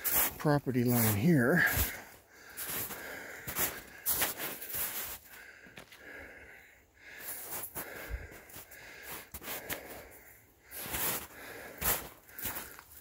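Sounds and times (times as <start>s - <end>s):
footsteps on rough ground: 0.0s - 6.2s, 10.7s - 13.0s
person breathing: 1.6s - 13.0s.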